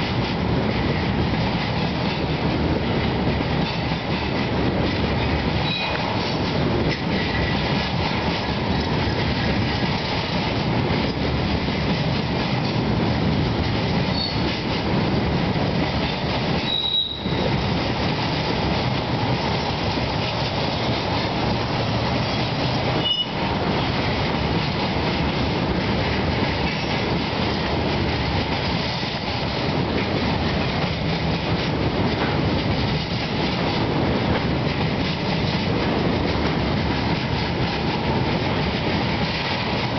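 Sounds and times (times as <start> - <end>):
train wheels rumbling on rail: 0.0 - 39.9
high wheel squeals: 14.1 - 14.4, 16.6 - 17.4.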